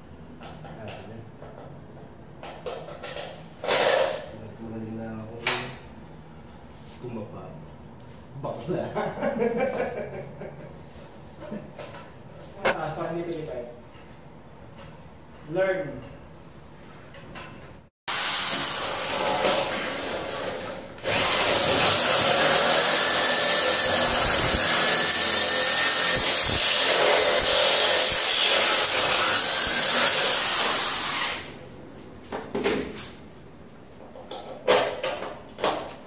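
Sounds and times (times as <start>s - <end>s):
electric drill boring through metal: 18.1s - 31.5s.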